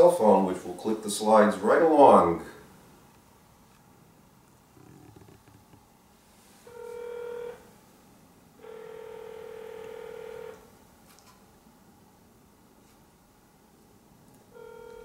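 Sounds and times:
phone electronic tones: 6.7s - 7.6s, 8.6s - 10.6s, 14.5s - 15.0s.

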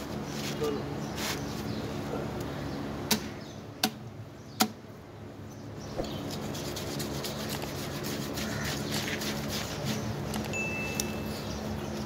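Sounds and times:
knife sawing through flesh: 6.3s - 10.1s.

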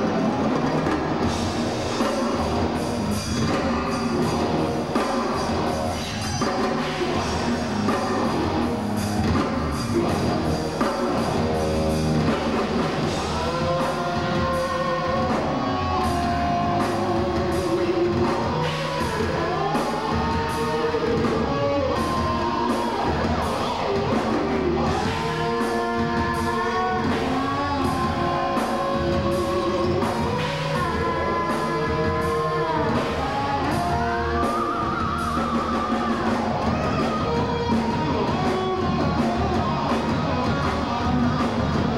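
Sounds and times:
heavy metal band playing live: 0.0s - 41.9s.

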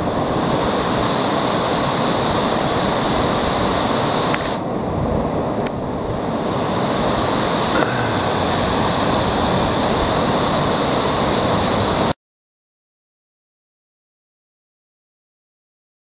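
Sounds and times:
river rushing over rocks: 6.2s - 12.1s.

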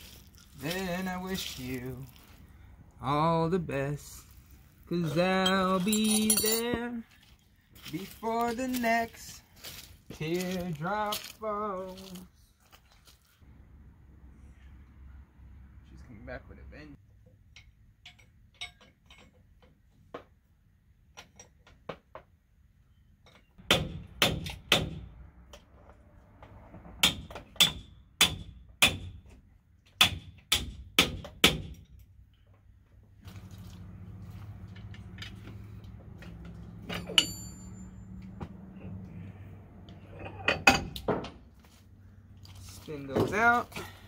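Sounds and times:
metal knocks and clanks: 34.6s - 38.6s, 40.0s - 41.4s.

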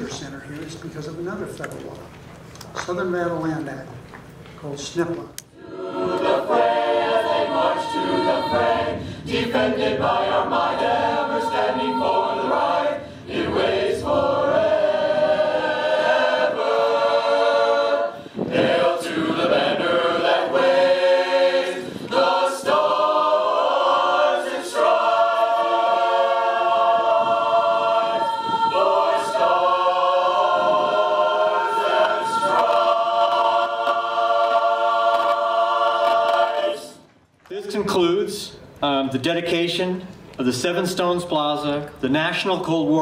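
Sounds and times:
mixed choir singing a cappella: 5.5s - 37.0s.

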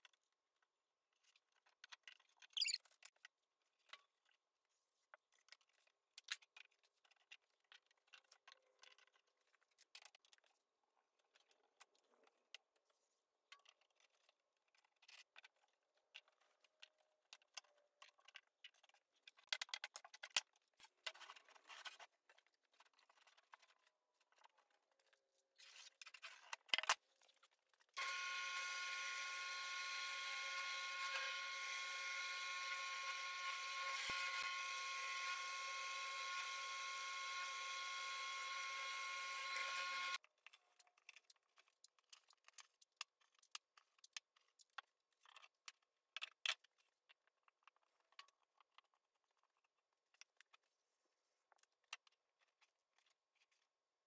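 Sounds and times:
bandsaw running: 28.0s - 40.2s.

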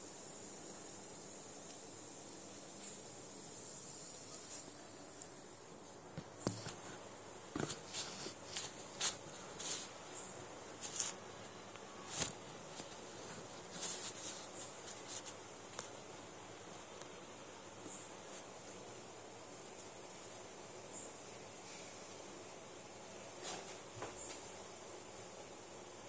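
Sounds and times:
rustling of handled objects: 6.2s - 16.0s.

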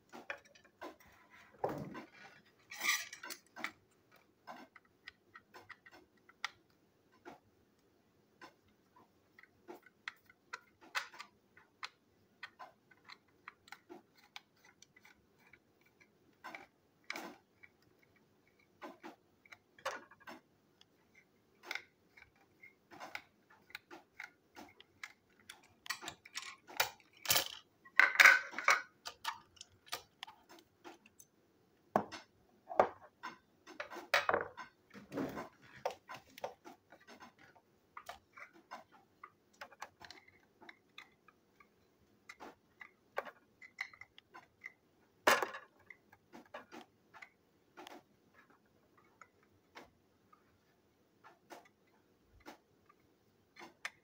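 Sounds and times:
plastic toy clicks and rattles: 2.6s - 6.6s, 9.4s - 20.5s, 21.2s - 31.3s.

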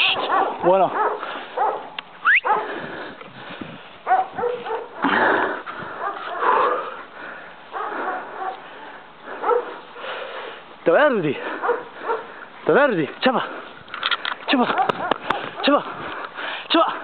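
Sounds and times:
quick rising whistle: 2.2s - 2.5s.

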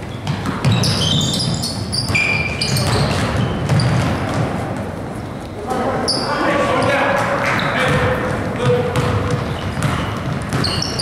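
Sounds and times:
basketball dribbling on hardwood: 0.0s - 4.9s, 7.9s - 11.0s
sneakers squeaking: 0.0s - 11.0s.

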